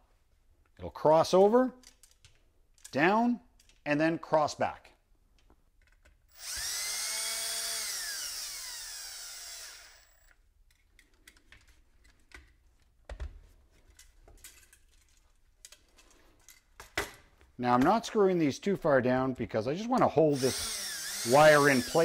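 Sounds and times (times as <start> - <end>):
cordless drill motor whine: 6.3 - 10.3, 20.3 - 22.0.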